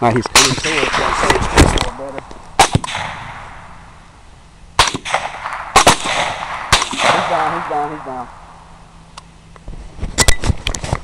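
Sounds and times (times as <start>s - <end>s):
gunshots with echo: 0.4s - 1.9s, 2.6s - 3.8s, 4.8s - 8.6s.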